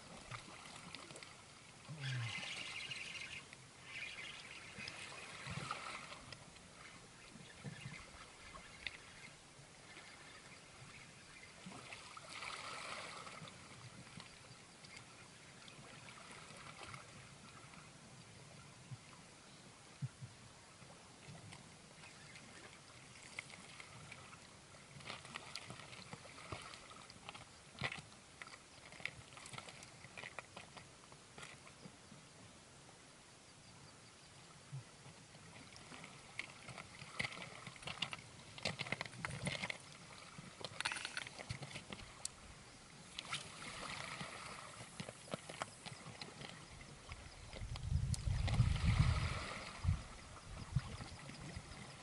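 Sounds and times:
water lapping against rocks: 0.0 - 15.2, 21.2 - 31.7, 34.9 - 52.0
sharp little splashes and clicks: 0.1 - 1.4, 22.3 - 31.7, 35.6 - 42.4, 43.1 - 48.6.

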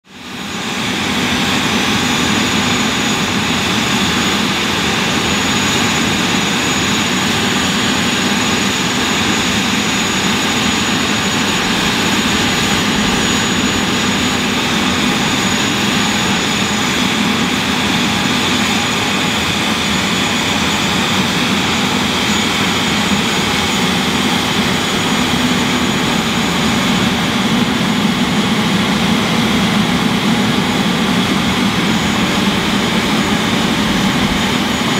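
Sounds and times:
jet engine whine: 0.0 - 34.9.

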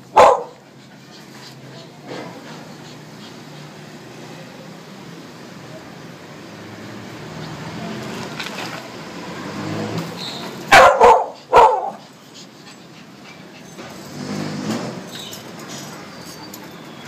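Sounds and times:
small dog barking sharply: 0.1 - 0.6, 10.7 - 12.0.

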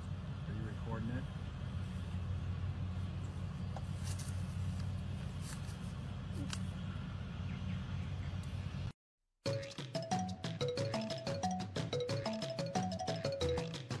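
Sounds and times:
low outdoor rumble: 0.0 - 8.9.

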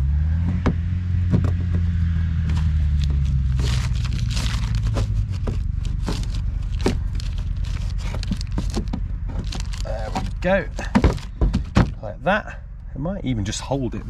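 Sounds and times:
plastic parts scraping and clicking: 2.5 - 12.0.

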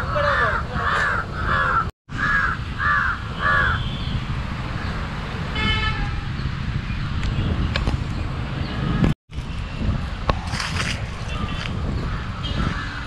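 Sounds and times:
crow cawing: 0.0 - 3.9, 12.1 - 13.0
low wind rumble: 0.0 - 13.0.

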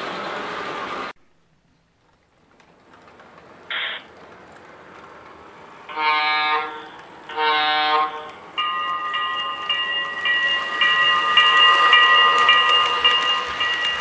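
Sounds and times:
model train horn blasts: 5.9 - 8.4
locomotive bell ringing: 8.5 - 14.0.

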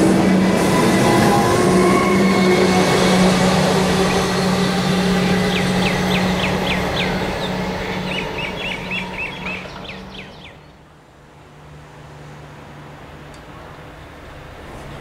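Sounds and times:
electric train humming: 0.0 - 15.0
bird chirping: 5.3 - 10.8.

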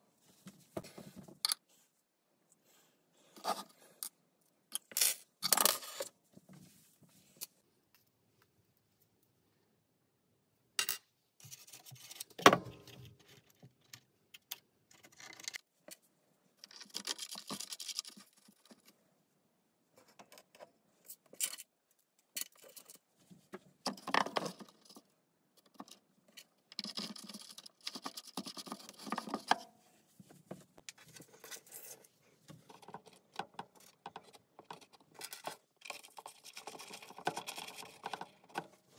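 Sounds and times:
scraping and rubbing: 26.4 - 38.9.

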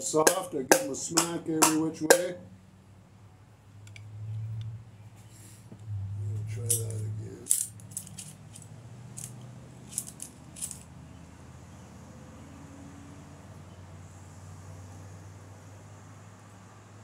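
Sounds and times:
low steady hum: 5.8 - 9.4.

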